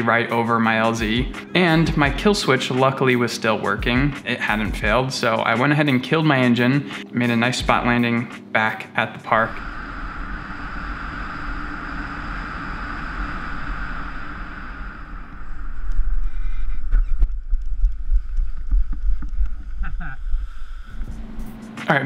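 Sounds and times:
wind buffeting microphone: 9.4s - 21.7s.

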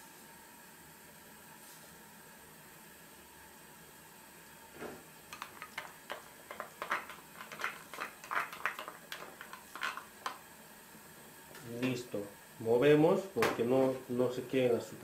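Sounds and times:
broth bubbling in a pot: 4.2s - 11.6s.

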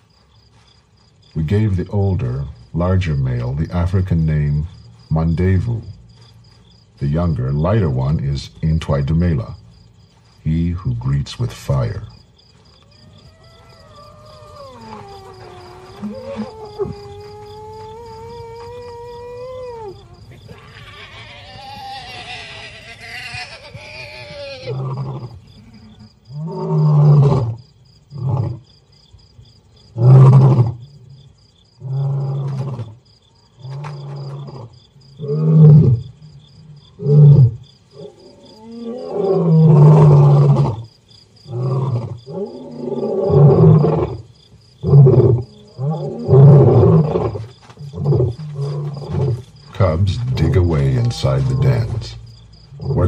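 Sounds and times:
insect trill: 0.0s - 53.0s
lion roaring: 13.0s - 23.2s, 23.8s - 28.6s, 29.9s - 30.8s, 31.8s - 33.0s, 33.6s - 40.9s, 41.5s - 44.2s, 44.8s - 53.0s.

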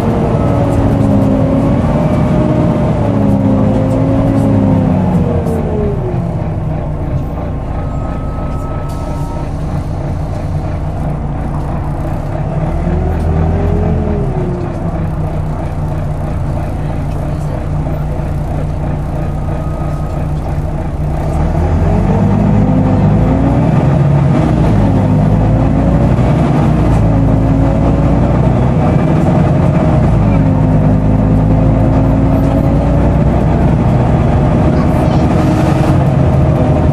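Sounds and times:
bus engine running: 0.0s - 36.9s
whining gear tones: 0.0s - 36.9s.

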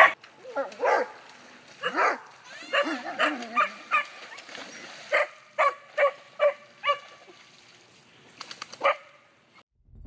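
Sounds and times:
dog barking: 0.0s - 1.2s, 1.8s - 4.2s, 5.1s - 7.1s, 8.8s - 9.2s.

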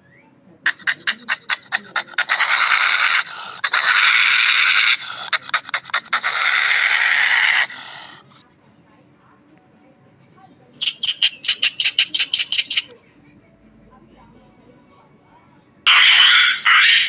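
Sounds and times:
animal panting puffs: 0.7s - 6.4s
animal hissing: 0.7s - 8.4s, 10.8s - 12.9s, 15.9s - 17.0s.

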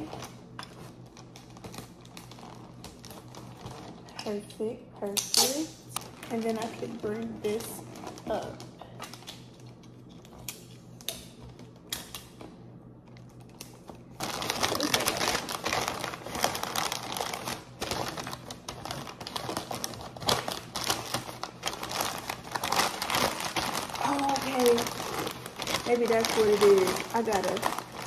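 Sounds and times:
paper rustling and crinkling: 0.0s - 4.2s, 13.4s - 28.0s.

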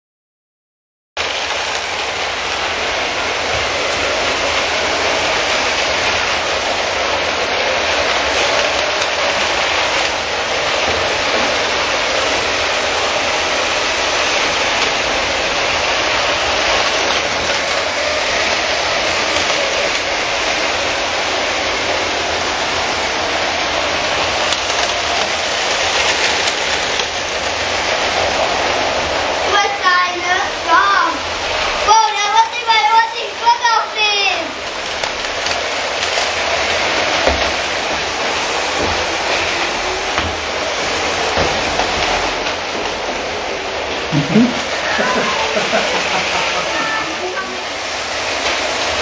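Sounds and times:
toy trains clattering on track: 1.2s - 49.0s.

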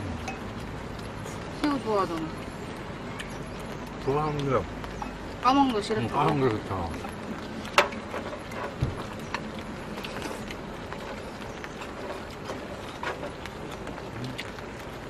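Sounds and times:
chopsticks clicking on steel bowls: 0.2s - 2.3s.

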